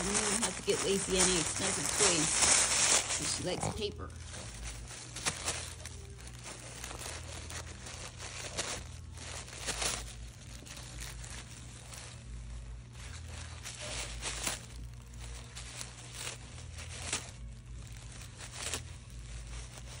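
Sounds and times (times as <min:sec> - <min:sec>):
paper ripping: 0:00.0 - 0:20.0
tissue paper crinkling and tearing: 0:00.0 - 0:20.0.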